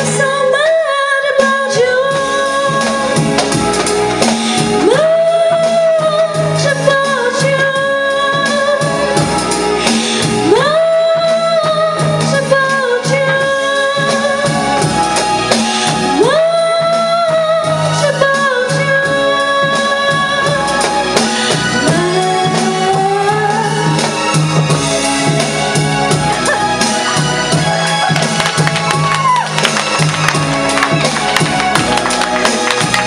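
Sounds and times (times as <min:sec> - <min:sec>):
woman singing into a microphone: 0:00.0 - 0:03.8, 0:04.6 - 0:25.4
instrumental accompaniment: 0:00.0 - 0:33.0.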